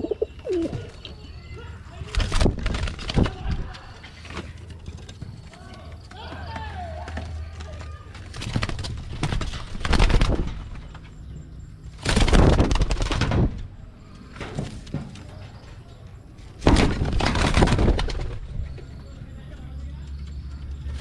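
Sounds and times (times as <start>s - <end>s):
pigeon wings flapping: 2.1s - 3.8s, 7.0s - 10.6s, 12.0s - 13.6s, 16.6s - 18.5s.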